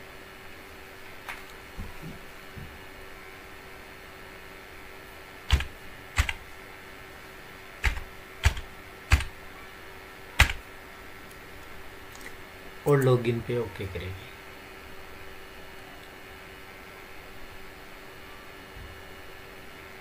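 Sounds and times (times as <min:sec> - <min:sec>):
faint steady hum: 0:00.0 - 0:20.0
computer keyboard keystrokes: 0:05.5 - 0:06.4, 0:07.8 - 0:09.3, 0:10.4 - 0:10.6.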